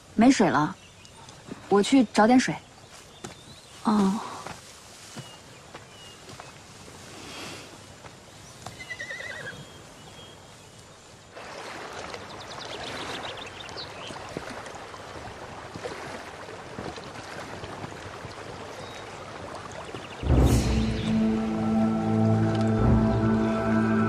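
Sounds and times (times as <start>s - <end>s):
water lapping at shore: 0.0s - 8.8s, 9.5s - 24.0s
horse whinnying: 8.8s - 9.6s
sudden loud hit: 20.2s - 21.7s
music: 20.2s - 24.0s.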